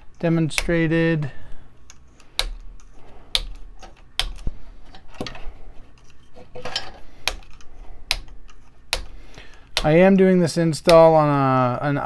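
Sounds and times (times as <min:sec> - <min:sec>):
sharp plastic clicks: 0:00.5 - 0:00.8, 0:01.8 - 0:04.5, 0:07.2 - 0:11.2.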